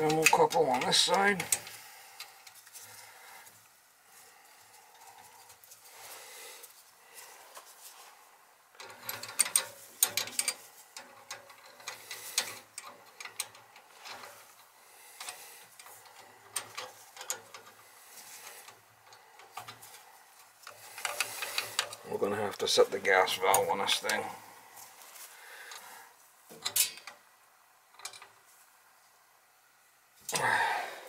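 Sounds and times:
wrench clicking on metal fittings: 8.8s - 14.3s.

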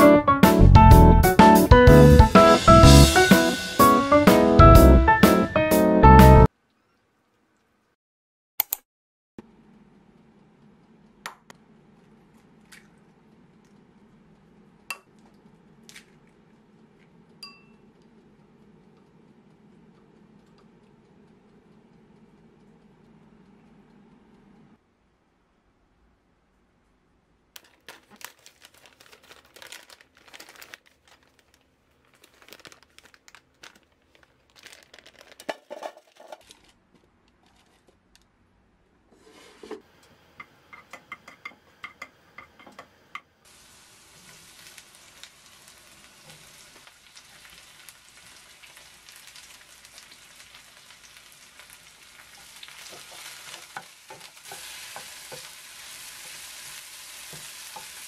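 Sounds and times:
plastic packet crinkling: 27.6s - 36.8s
garlic sizzling in oil: 43.4s - 58.0s
wooden spatula stirring: 52.3s - 58.0s.

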